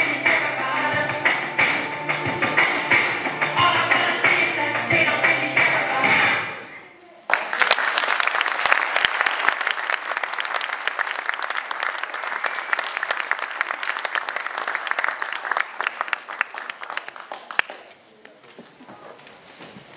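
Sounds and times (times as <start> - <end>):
audience applauding: 7.3 - 18.0.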